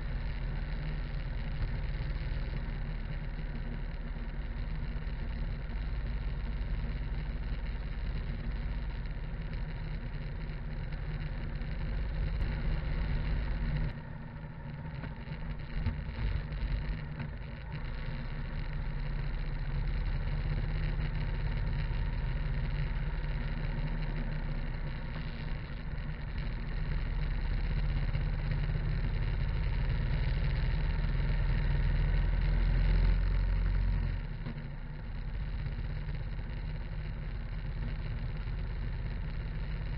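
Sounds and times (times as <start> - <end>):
motorcycle engine running: 0.0 - 39.9
road noise: 0.0 - 39.9.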